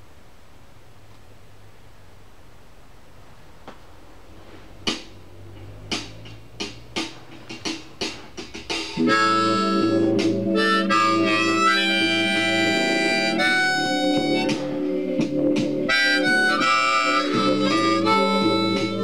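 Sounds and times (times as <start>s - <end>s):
harmonica playing blues: 8.7s - 19.0s.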